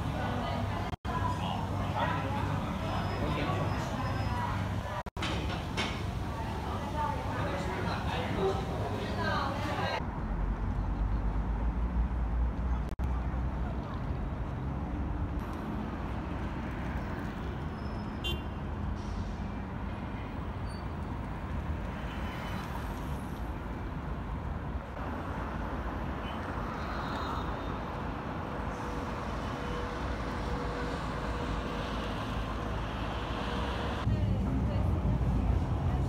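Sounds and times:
road vehicle rumble: 0.0 - 36.0.

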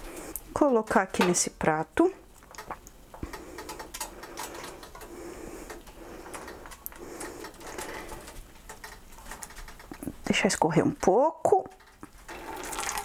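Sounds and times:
tongs clicking and scraping on pot: 2.4 - 12.2.

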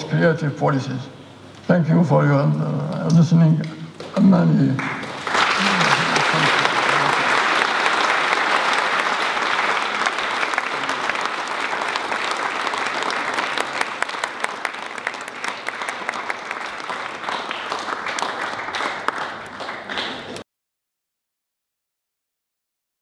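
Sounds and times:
audience applauding: 4.0 - 20.4.

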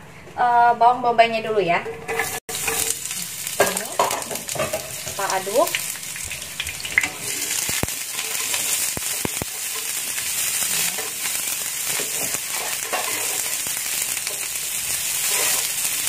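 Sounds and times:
spatula stirring: 2.0 - 4.9, 6.6 - 16.0
onion sizzling in frying pan: 2.1 - 16.0.

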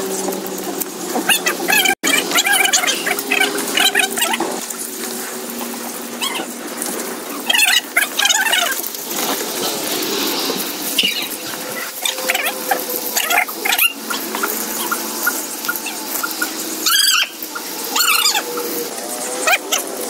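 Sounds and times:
hose water splashing on concrete: 0.0 - 20.0
high squeaky chirps: 11.0 - 18.8.

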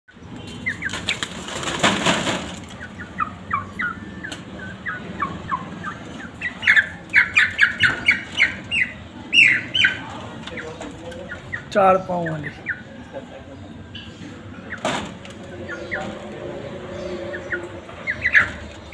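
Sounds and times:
chickens squawking: 0.2 - 18.9.

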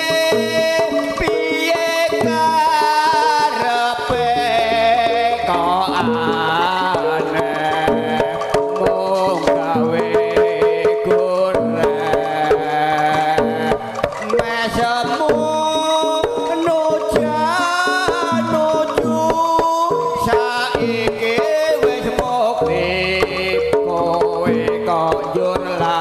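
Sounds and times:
sustained gamelan tones: 0.0 - 10.1
bending melody line: 0.0 - 26.0
hand drums beating: 0.0 - 26.0.

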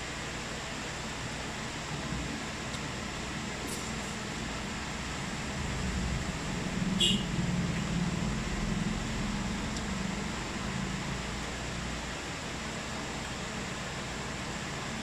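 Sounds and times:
fan-like hiss and hum: 0.0 - 15.0.

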